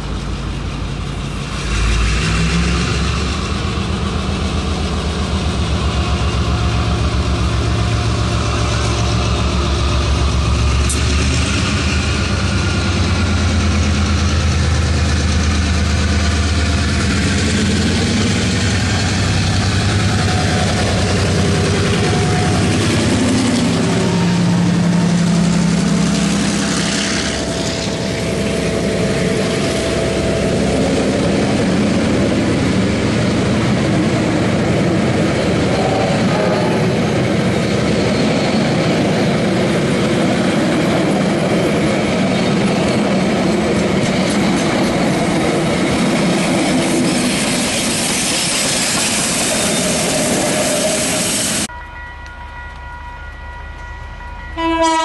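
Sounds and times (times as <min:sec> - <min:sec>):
diesel locomotive engine: 0:00.0 - 0:55.0
train wheels rumbling on rails: 0:00.0 - 0:55.0.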